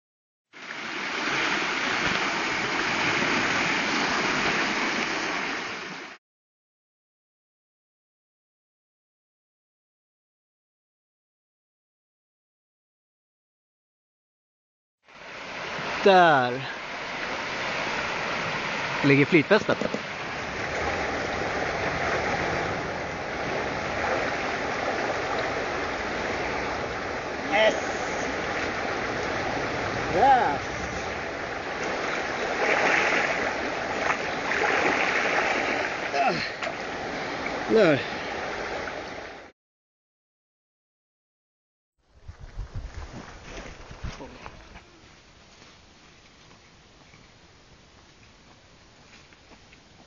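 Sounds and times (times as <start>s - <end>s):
fast river rushing: 0.6s - 6.2s, 15.1s - 39.5s.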